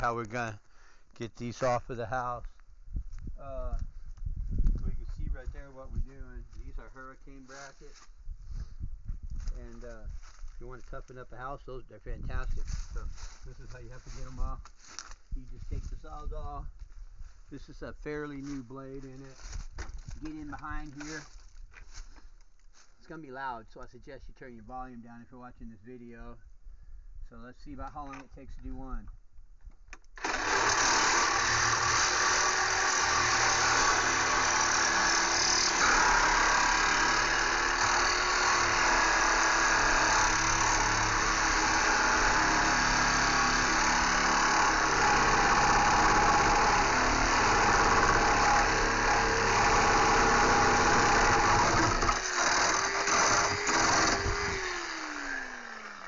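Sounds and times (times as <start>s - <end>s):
reciprocating saw cutting metal: 30.2s - 56.0s.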